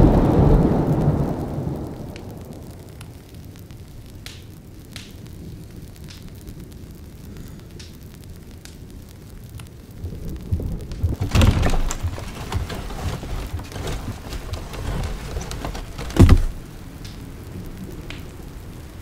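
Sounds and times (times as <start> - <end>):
rain patter: 0.0 - 19.0
low rumbling thumps: 10.0 - 16.6.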